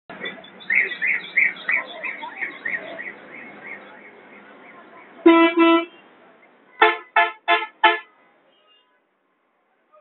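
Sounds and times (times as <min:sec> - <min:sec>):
vehicle horn toots: 0:05.3 - 0:06.0, 0:06.8 - 0:09.0.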